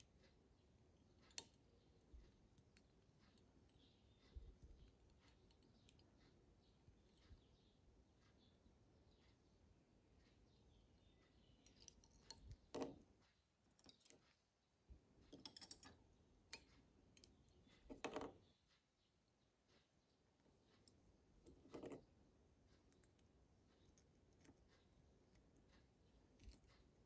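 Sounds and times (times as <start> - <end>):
small clicks and rustles: 11.2 - 14.6, 19.6 - 27.0.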